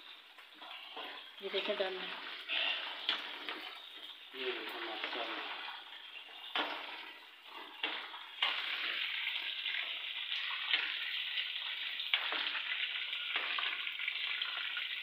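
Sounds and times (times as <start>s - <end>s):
chicken sizzling in hot oil: 0.0s - 15.0s.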